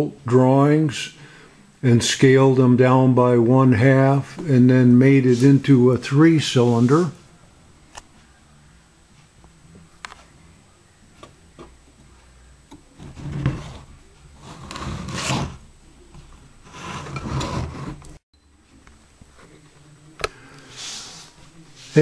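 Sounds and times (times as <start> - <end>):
rasping rubs: 13.0 - 15.6.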